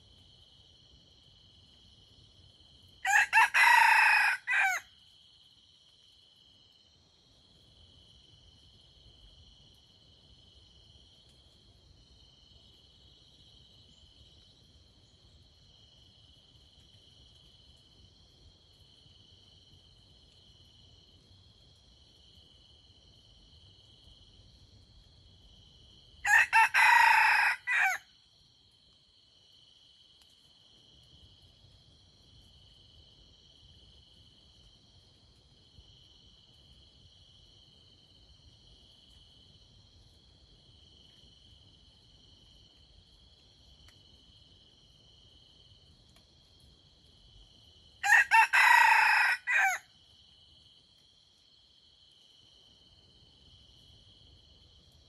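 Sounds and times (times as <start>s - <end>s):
rooster crowing: 3.0s - 4.9s, 26.2s - 28.1s, 48.0s - 49.9s.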